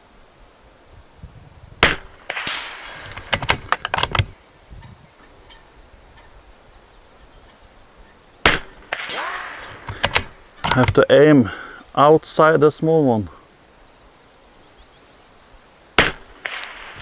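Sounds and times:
rifle shot: 0:01.8 - 0:04.3, 0:08.4 - 0:10.8, 0:16.0 - 0:17.0
sharp metallic clicks: 0:01.8 - 0:04.3, 0:08.5 - 0:11.1.

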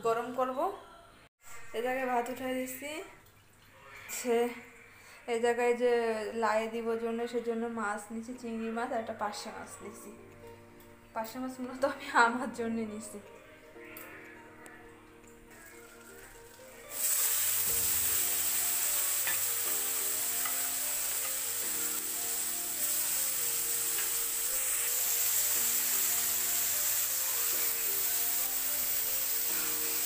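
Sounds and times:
prawns sizzling in hot oil: 0:15.5 - 0:30.0.

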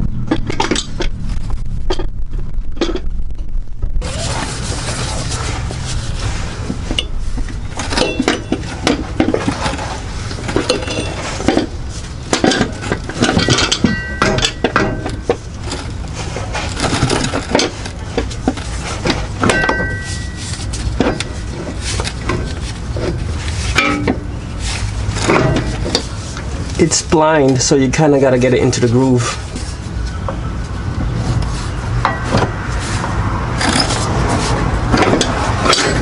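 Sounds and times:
metal clinks and scrapes: 0:04.1 - 0:26.9, 0:31.2 - 0:36.0.

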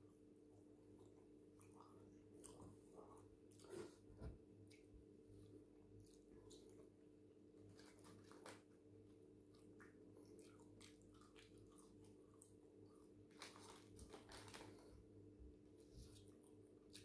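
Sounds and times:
person chewing fries: 0:09.4 - 0:14.9.

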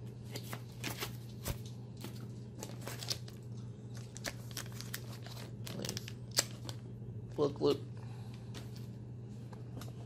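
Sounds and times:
steady low hum: 0:00.0 - 0:10.0
plastic sleeve crinkling: 0:00.3 - 0:06.9.

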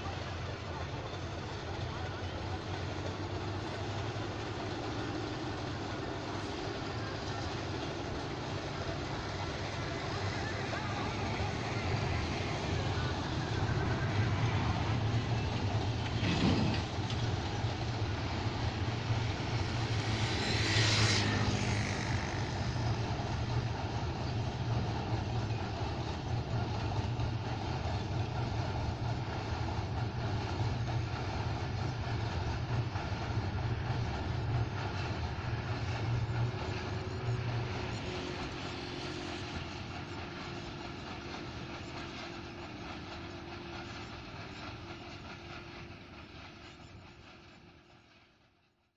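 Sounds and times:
distant train rumbling on bridge: 0:00.0 - 0:48.9.

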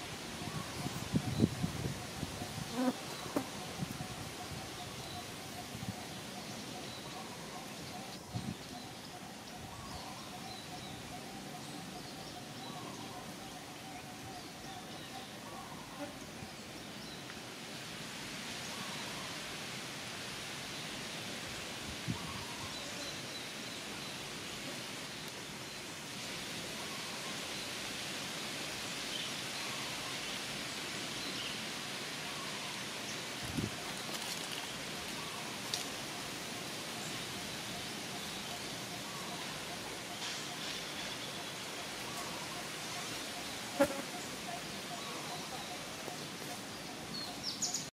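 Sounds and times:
outdoor background noise: 0:00.0 - 0:47.9.

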